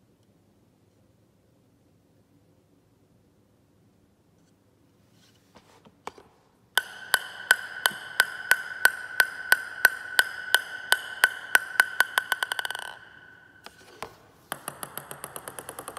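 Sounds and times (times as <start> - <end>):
table tennis ball bouncing on paddle: 6.0 - 15.9.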